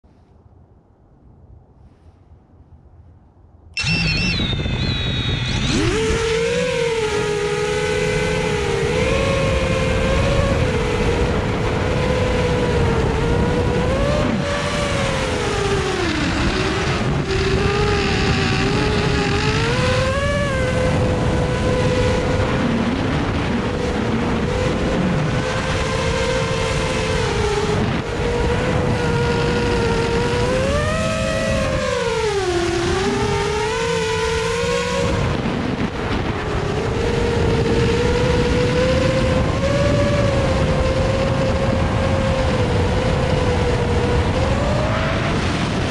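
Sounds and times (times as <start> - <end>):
drone propellers buzzing whine: 3.8 - 45.9.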